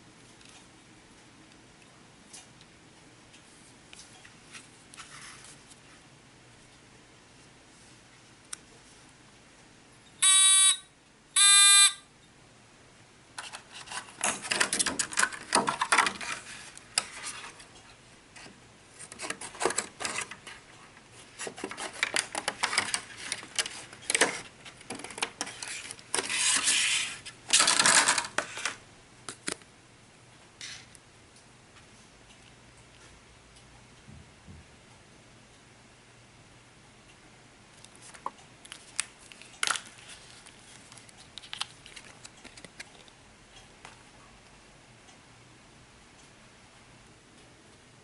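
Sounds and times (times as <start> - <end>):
electronic buzzer beeping: 10.2 - 12.1.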